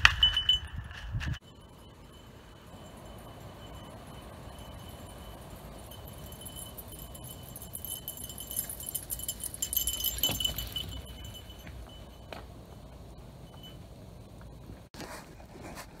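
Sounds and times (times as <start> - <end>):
mountain bike rattling on dry leaves: 2.6 - 12.1.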